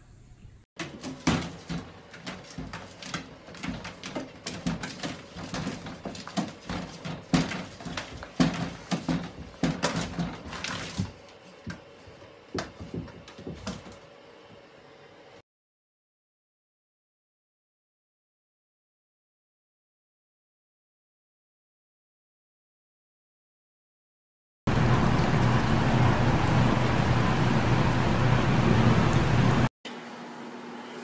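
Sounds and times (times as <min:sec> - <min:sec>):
claws scraping on bathtub: 0:01.0 - 0:11.6.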